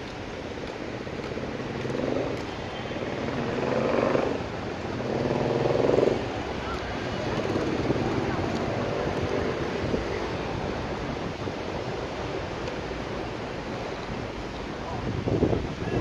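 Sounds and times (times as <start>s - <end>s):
city road traffic: 0.0s - 16.0s
vehicles passing: 0.0s - 16.0s.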